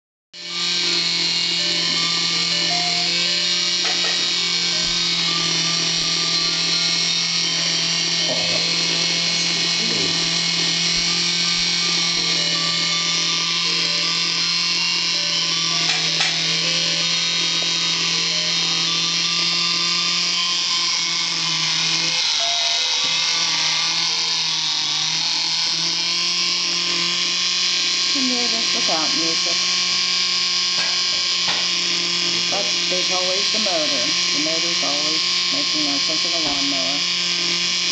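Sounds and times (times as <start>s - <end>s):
toy electric motor droning: 0.4s - 37.9s
faint tinny toy melody: 22.3s - 23.1s.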